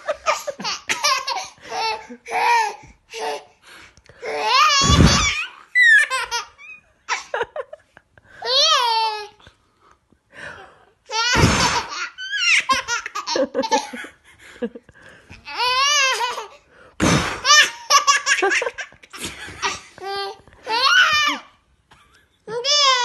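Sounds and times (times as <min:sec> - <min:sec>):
baby laughing: 0:00.0 - 0:03.5, 0:04.2 - 0:07.5, 0:11.1 - 0:14.0, 0:15.4 - 0:16.6, 0:17.4 - 0:21.5.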